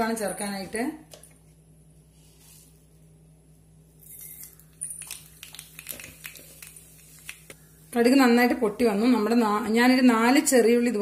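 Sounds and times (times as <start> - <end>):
seeds popping and crackling: 4.4 - 7.6.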